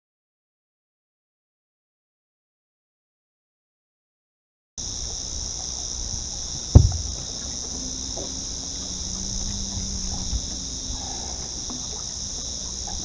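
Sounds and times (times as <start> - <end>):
insects droning: 4.8 - 13.0
loud knock on boat: 6.7 - 7.4.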